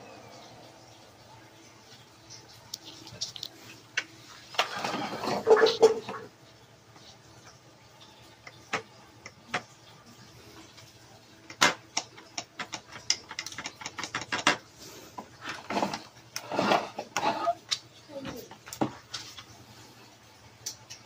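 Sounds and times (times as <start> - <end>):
rustling handling noise: 2.6 - 6.2.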